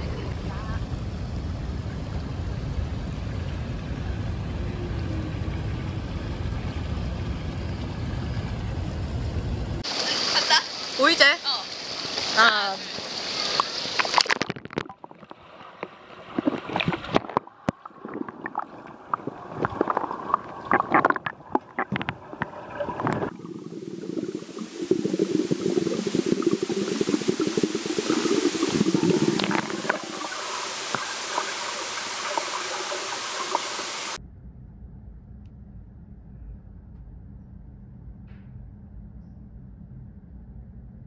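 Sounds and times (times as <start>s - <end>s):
muffled rush of water and bubbles: 0.0s - 34.2s
underwater sloshing and gurgling: 1.3s - 10.2s, 11.7s - 34.2s
knocks and clicks underwater: 13.5s - 23.6s, 24.2s - 33.8s.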